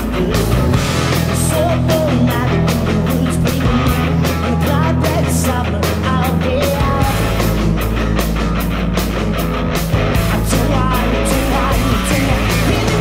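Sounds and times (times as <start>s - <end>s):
bass guitar: 0.0s - 13.0s
electric guitars: 0.0s - 13.0s
drum beat: 9.5s - 13.0s.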